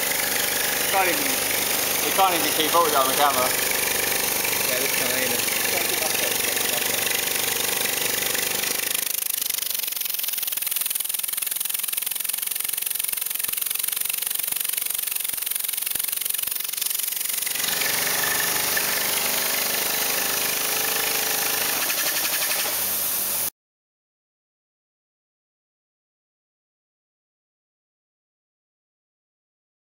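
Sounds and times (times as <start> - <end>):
compressed-air engine rattling: 0.0 - 18.8.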